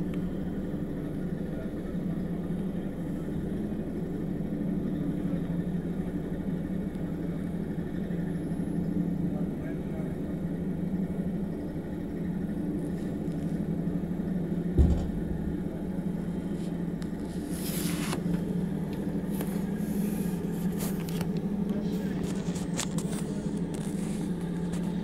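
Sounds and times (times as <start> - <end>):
low hum inside railway carriage: 0.0 - 25.0
dull thump: 14.8 - 15.9.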